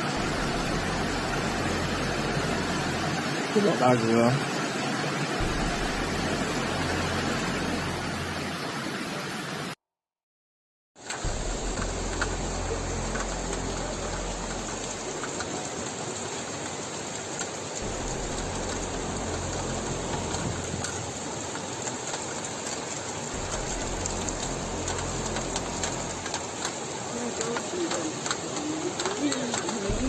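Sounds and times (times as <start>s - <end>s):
low rumble: 0.0s - 3.5s, 5.2s - 8.6s, 11.2s - 16.2s, 17.8s - 27.1s
heavy rain: 0.0s - 9.8s, 11.0s - 30.0s
rushing floodwater: 0.0s - 9.8s, 11.0s - 30.0s.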